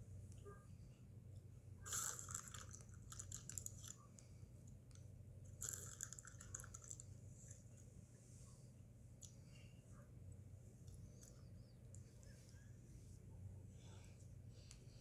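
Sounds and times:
snack bag crinkling: 1.9s - 4.0s, 5.6s - 7.1s.

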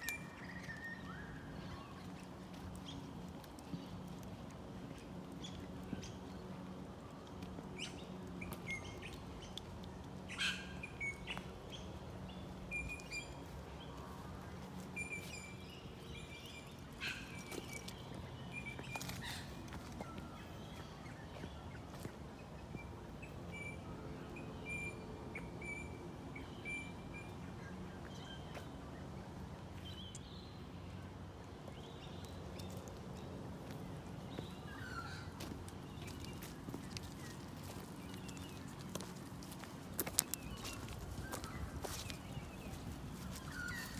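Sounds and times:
small birds chirping: 0.0s - 43.9s
footsteps on dirt path: 13.4s - 22.8s, 31.6s - 43.9s.

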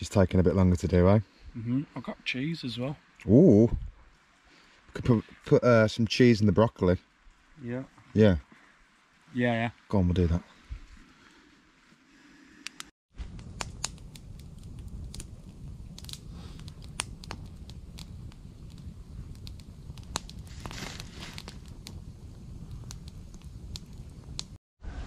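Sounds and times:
low steady fire rumble: 0.0s - 25.0s
campfire crackling and popping: 12.6s - 24.6s.

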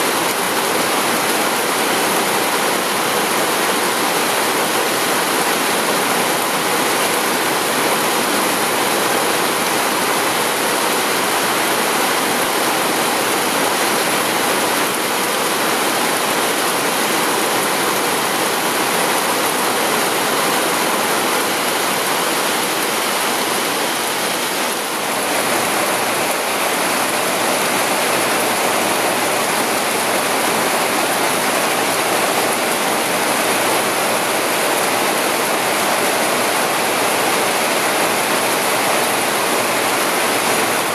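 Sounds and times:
heavy rain downpour: 0.0s - 40.9s.

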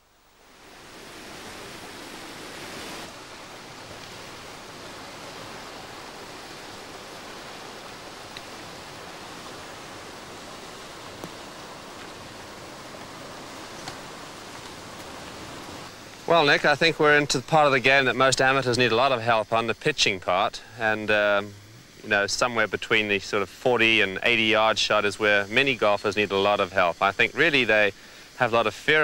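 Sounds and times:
rushing hiss: 0.4s - 29.0s
faint ticks: 7.9s - 8.6s.

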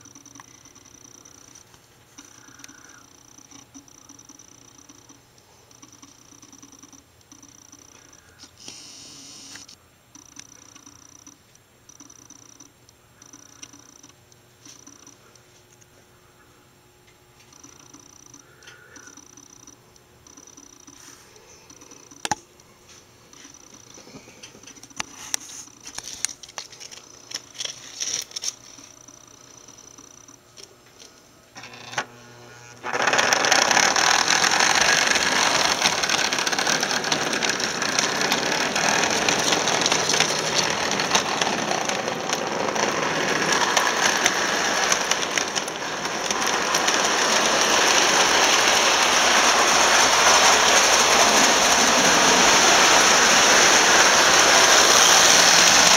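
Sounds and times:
toy train clattering and whirring: 5.8s - 9.8s, 23.4s - 28.9s, 32.8s - 55.9s
faint clicks: 17.1s - 22.4s.

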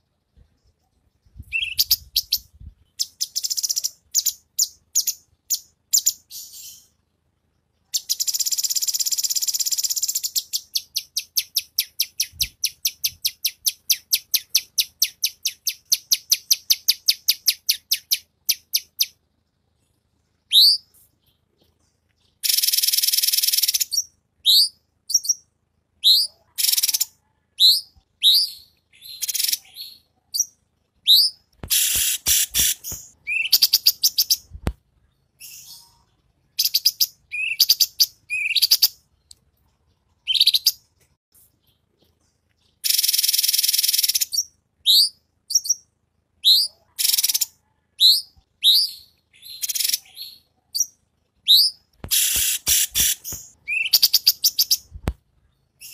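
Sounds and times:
songbirds chirping: 0.0s - 55.9s
sharp clicking bird notes: 31.5s - 34.8s, 51.9s - 55.2s.

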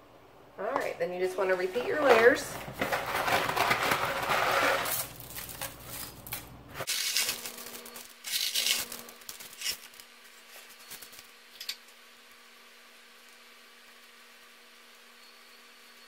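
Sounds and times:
dry pasta rattling out of box: 1.7s - 11.3s.

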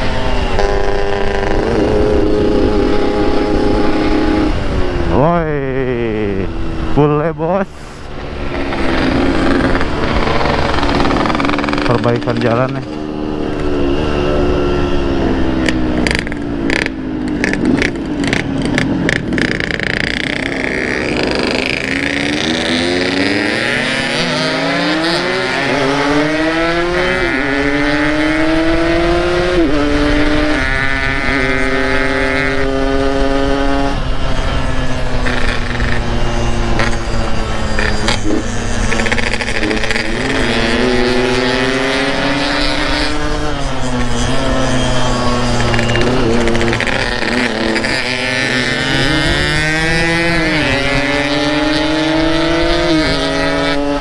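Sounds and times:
two-stroke motorcycle engine: 0.0s - 54.0s
engine crackles: 6.9s - 28.1s, 33.2s - 54.0s.

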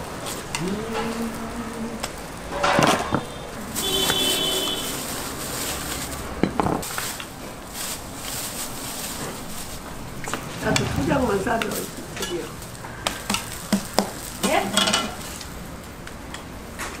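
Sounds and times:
plastic bags crinkling: 0.0s - 16.0s.

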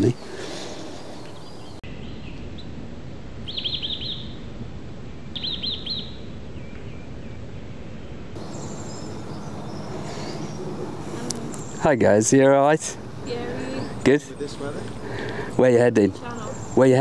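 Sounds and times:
songbird singing high falling notes: 3.4s - 4.4s, 5.4s - 7.4s, 8.4s - 12.0s.

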